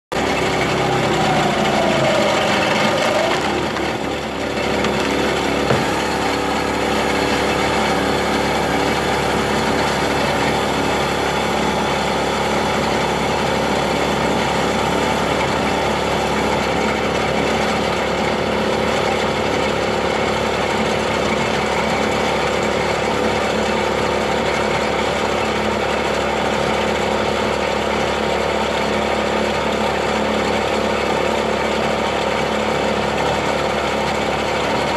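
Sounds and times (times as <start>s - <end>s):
log splitter engine running: 0.1s - 34.9s
wood cracking: 1.2s - 7.0s.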